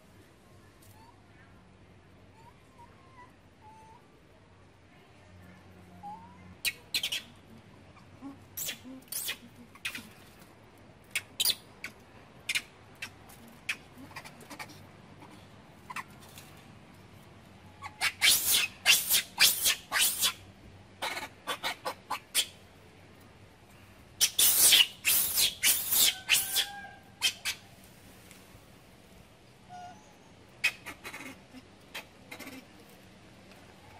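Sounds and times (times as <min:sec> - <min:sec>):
high-pitched chirps and squeaks: 0:17.8 - 0:20.4, 0:24.2 - 0:27.6.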